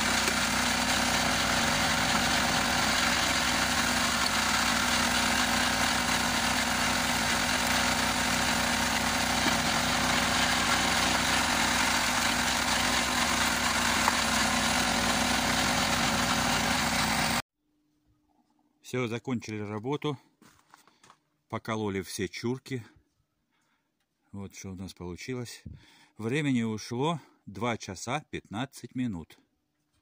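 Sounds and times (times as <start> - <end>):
log splitter cone splitting logs: 0.0 - 17.4
tractor engine running: 0.0 - 17.4.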